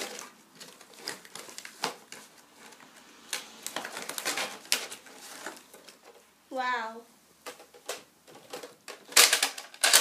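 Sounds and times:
cardboard and plastic rustling: 0:00.0 - 0:06.3, 0:07.4 - 0:10.0.

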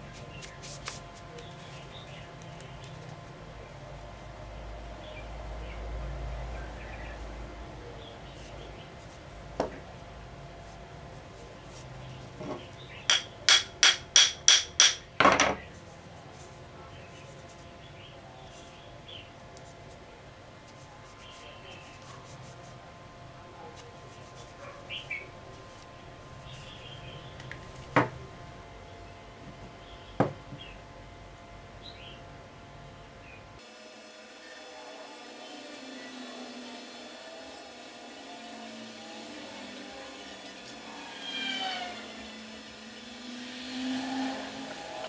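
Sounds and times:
sharp knocks with metallic ring: 0:13.1 - 0:15.6.

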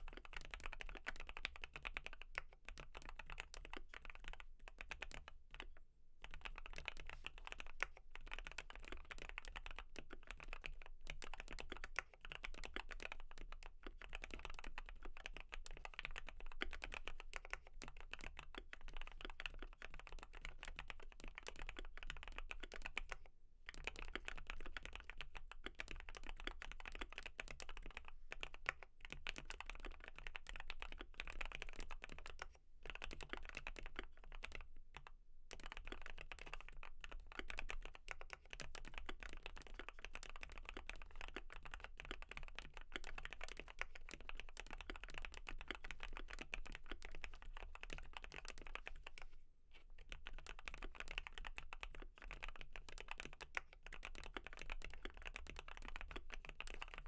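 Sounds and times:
fast mechanical keyboard typing: 0:00.0 - 0:49.3, 0:50.0 - 0:57.0.

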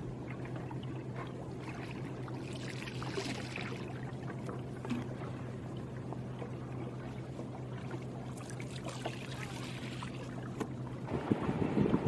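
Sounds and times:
water lapping around boat: 0:00.0 - 0:12.0
wind buffeting microphone: 0:11.0 - 0:12.0.

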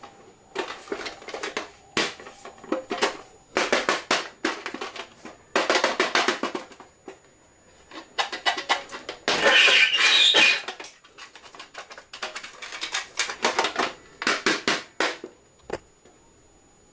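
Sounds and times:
metal box scraping along table: 0:09.4 - 0:10.7.

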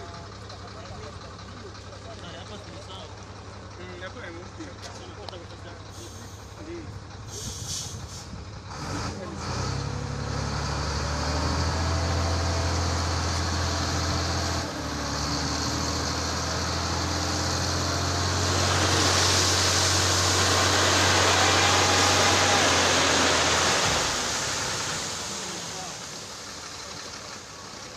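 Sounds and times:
heavy diesel engine running: 0:00.0 - 0:27.9
rushing noise: 0:17.2 - 0:26.6.

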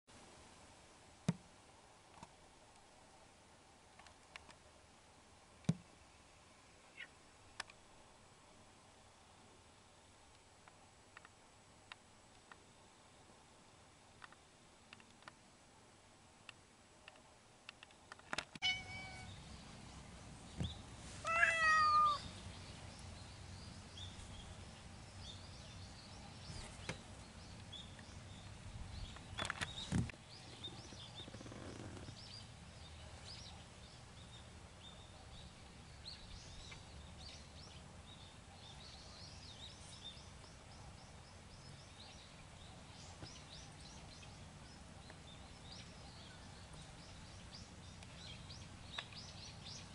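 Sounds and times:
cat meowing: 0:18.6 - 0:19.3, 0:21.2 - 0:22.3.

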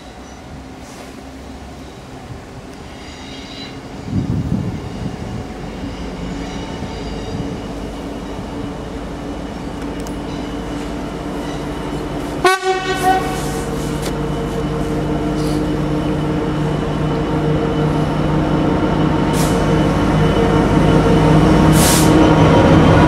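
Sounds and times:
diesel locomotive engine droning: 0:00.0 - 0:23.0
locomotive horn blast: 0:12.4 - 0:13.9.

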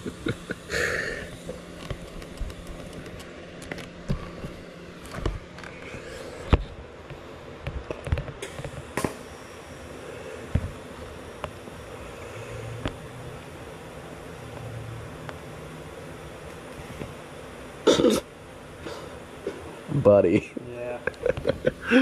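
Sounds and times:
welding arc hissing: 0:00.0 - 0:03.2, 0:08.4 - 0:19.8
sharp clicks and crackles: 0:01.3 - 0:04.2.

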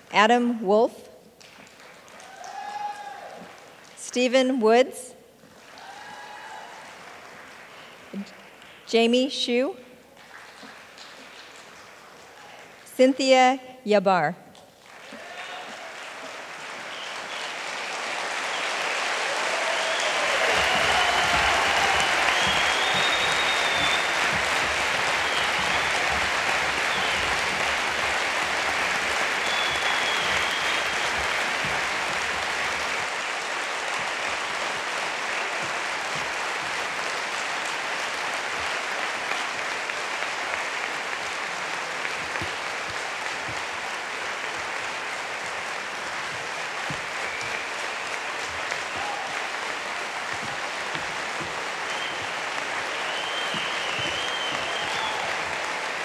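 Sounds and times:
large audience clapping: 0:01.4 - 0:04.0, 0:05.4 - 0:08.9, 0:10.2 - 0:12.9, 0:14.7 - 0:56.0
short whistles: 0:19.7 - 0:24.4, 0:25.1 - 0:26.1, 0:29.4 - 0:31.4, 0:47.2 - 0:47.8, 0:51.9 - 0:55.4.

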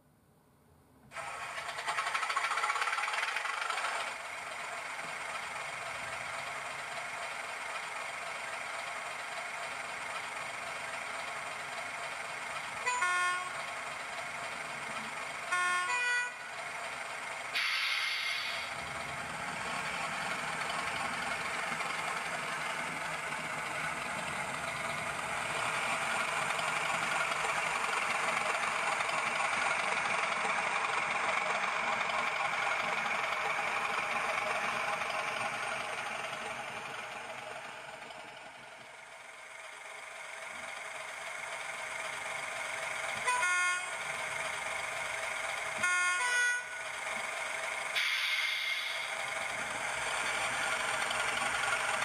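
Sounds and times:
diesel locomotive engine sound: 0:00.0 - 0:52.0
locomotive horn blasts: 0:12.8 - 0:13.6, 0:15.5 - 0:16.5, 0:43.2 - 0:44.0, 0:45.8 - 0:46.8
air hiss: 0:17.6 - 0:18.7, 0:48.0 - 0:49.1.

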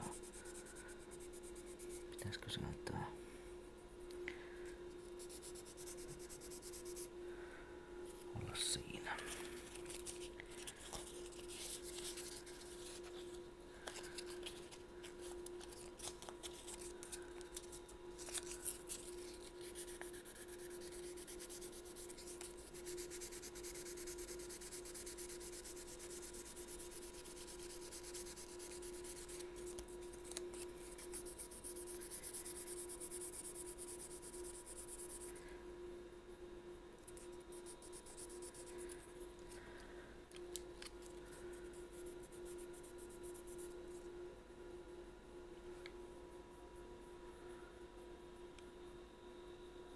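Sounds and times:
sandpaper scratching: 0:05.2 - 0:07.1, 0:18.2 - 0:35.2.

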